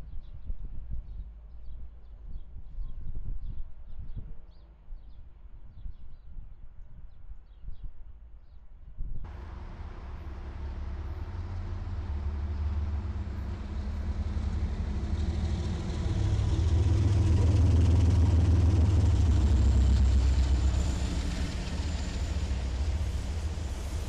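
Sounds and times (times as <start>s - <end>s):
diesel locomotives passing: 9.3s - 24.0s.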